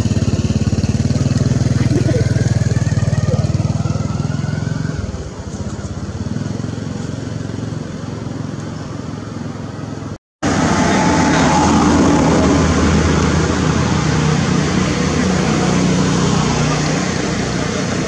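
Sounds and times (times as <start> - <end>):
small engine running: 0.0 - 9.5.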